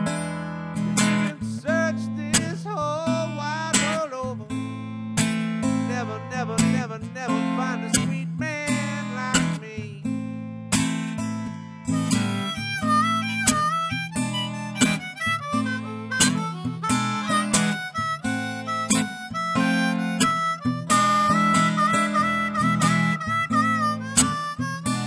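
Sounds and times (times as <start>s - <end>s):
acoustic guitar solo: 0.0s - 25.0s
harmonica playing: 11.3s - 25.0s.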